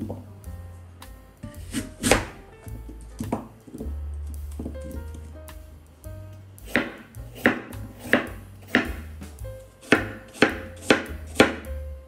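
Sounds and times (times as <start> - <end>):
knife chopping on cutting board: 1.4 - 5.2, 6.6 - 11.8.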